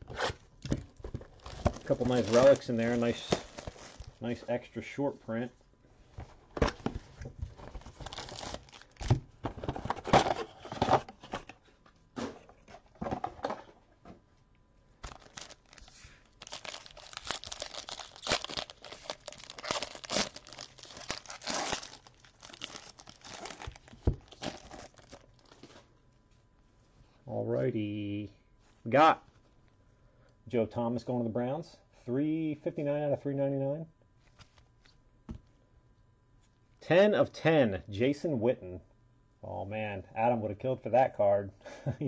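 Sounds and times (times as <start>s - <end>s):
wrapping crinkling: 0.1s - 4.5s, 6.8s - 9.2s, 15.0s - 25.9s.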